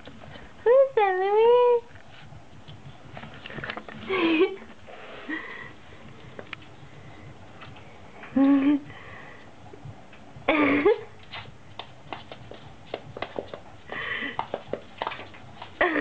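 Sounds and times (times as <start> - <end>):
claws clicking on hardwood floor: 11.2 - 15.8
paws tapping mirror: 11.2 - 16.0.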